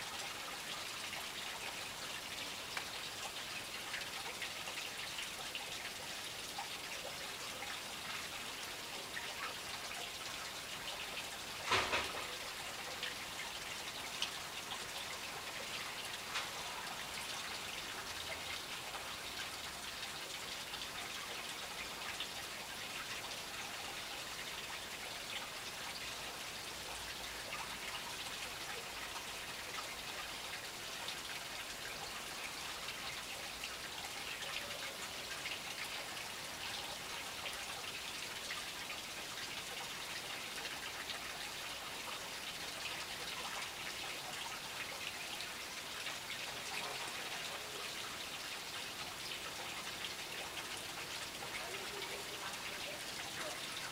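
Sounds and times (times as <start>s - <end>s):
fountain splashing: 26.8s - 53.9s.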